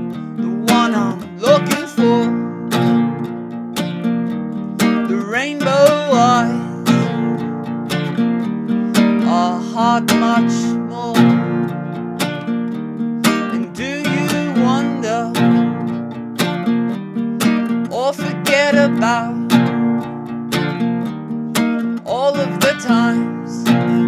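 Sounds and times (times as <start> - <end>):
acoustic guitar strumming chords: 0.0 - 24.0
wordless vocal line: 0.2 - 2.7, 5.1 - 7.6, 9.0 - 11.6, 13.4 - 15.6, 17.9 - 19.5, 22.1 - 24.0.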